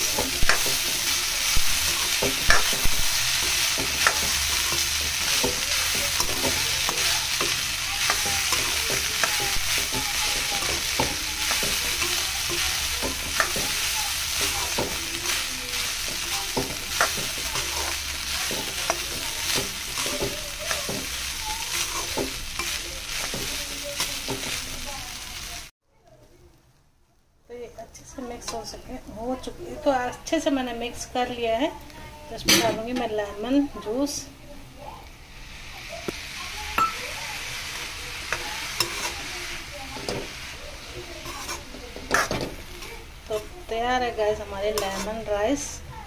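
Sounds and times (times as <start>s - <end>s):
oil sizzling: 0.0s - 26.2s, 27.8s - 46.0s
metal spatula scraping pan: 36.8s - 43.6s, 44.2s - 45.4s.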